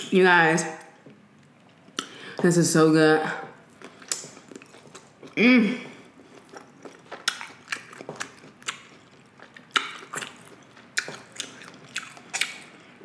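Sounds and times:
wet chewing clicks and smacks: 3.7s - 5.4s, 6.2s - 12.9s.

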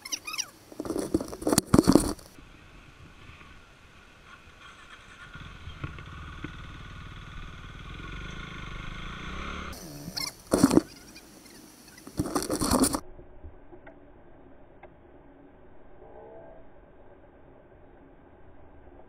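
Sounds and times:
motorcycle engine running: 4.2s - 11.0s.

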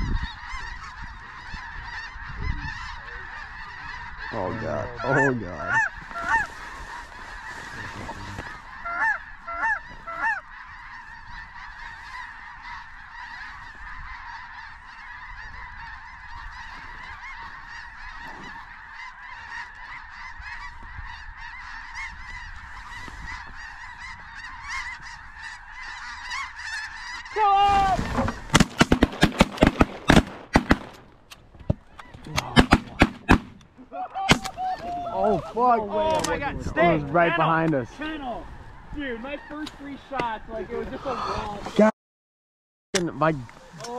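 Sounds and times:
geese honking: 0.0s - 30.9s, 34.2s - 41.6s.

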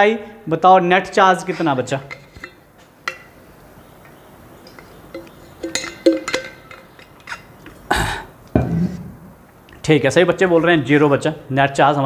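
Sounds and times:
metal bottle clinking: 4.7s - 7.9s
person swallowing: 7.8s - 8.4s.

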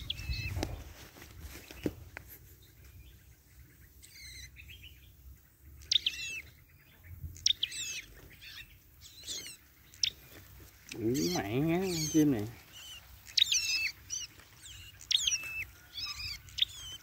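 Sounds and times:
small songbirds chirping: 0.0s - 17.0s.

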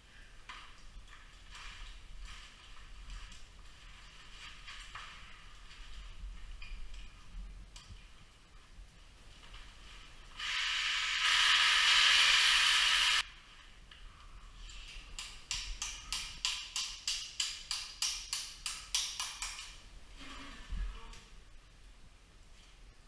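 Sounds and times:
loud hiss: 10.3s - 13.3s.

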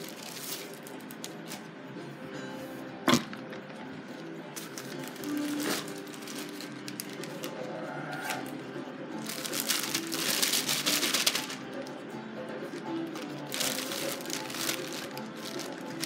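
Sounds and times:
plastic bag crinkling: 0.0s - 1.4s, 4.6s - 7.6s, 9.2s - 11.9s, 13.0s - 16.0s
soft ambient radio music: 0.0s - 16.0s.

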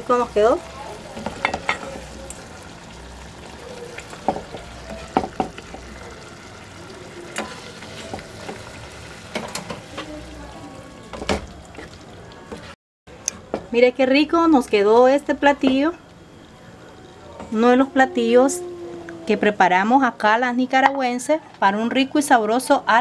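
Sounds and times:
spoon knocking against pot: 4.2s - 5.8s
spoon stirring and scraping pot: 7.3s - 8.7s.

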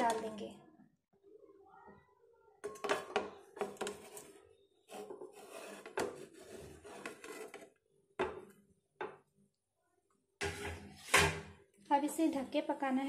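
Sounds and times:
pan scraping on stove: 2.8s - 7.7s, 10.4s - 11.5s
plate scraping frying pan: 4.9s - 7.6s, 10.4s - 11.5s.

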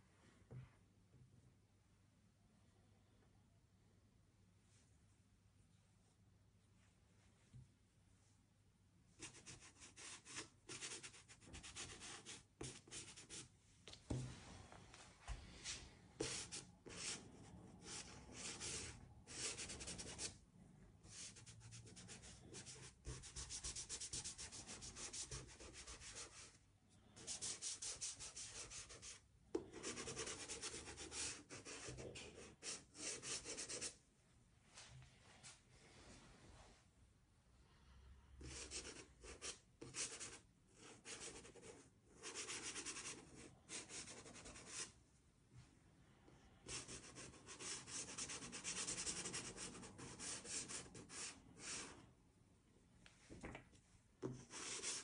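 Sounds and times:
pastel rubbing on paper: 27.2s - 29.2s, 54.3s - 55.0s.

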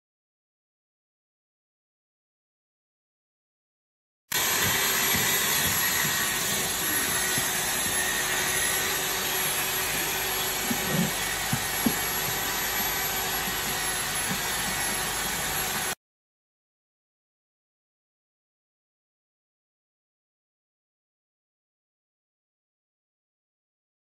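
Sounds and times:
plaster sprayer hissing: 4.3s - 16.0s.

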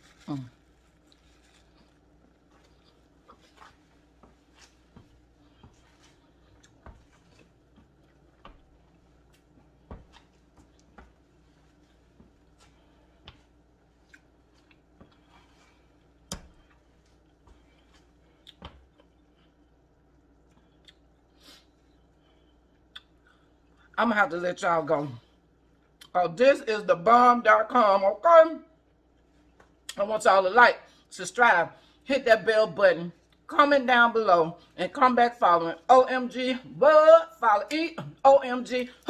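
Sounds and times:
low room hum: 0.0s - 39.0s
person chewing with lip smacks: 6.5s - 7.4s, 14.0s - 15.3s, 20.4s - 21.2s, 22.8s - 23.9s.

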